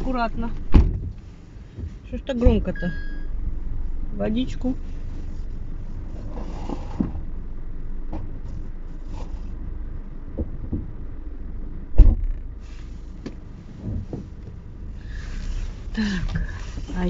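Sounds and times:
car engine idling: 0:00.0 - 0:17.0
heavy thump: 0:00.6 - 0:01.2, 0:11.9 - 0:12.6
small knocks: 0:10.4 - 0:11.0.

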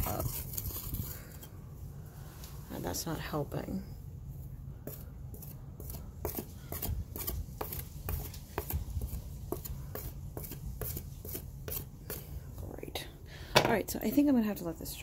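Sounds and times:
putty knife scraping: 0:04.9 - 0:12.2.

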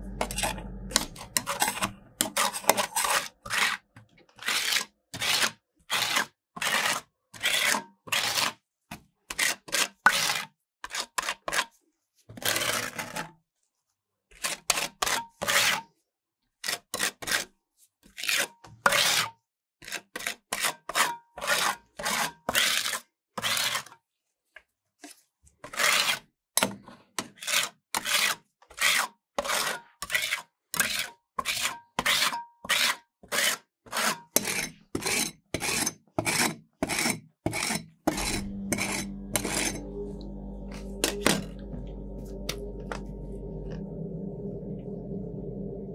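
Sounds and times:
metal spatulas scraping steel plate: 0:00.0 - 0:03.8, 0:27.2 - 0:41.6.

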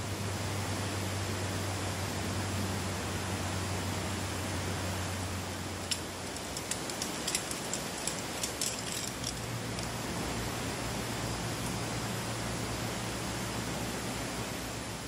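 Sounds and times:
outdoor hiss: 0:00.0 - 0:15.0
light clicks and taps of gear: 0:05.8 - 0:10.0.

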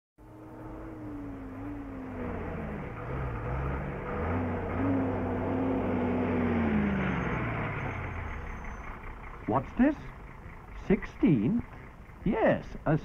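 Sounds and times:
diesel truck engine running: 0:00.2 - 0:13.0.

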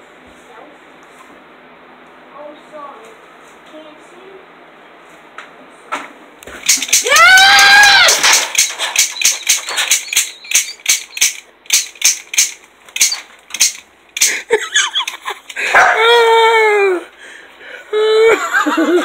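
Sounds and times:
toy cap gun firing: 0:06.6 - 0:14.4
long high cry: 0:06.9 - 0:08.5, 0:15.7 - 0:17.1.

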